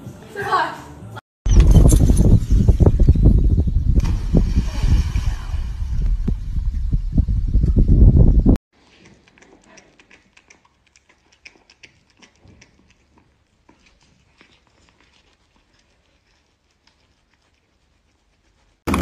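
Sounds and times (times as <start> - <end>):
cat chewing corn: 8.8 - 18.8.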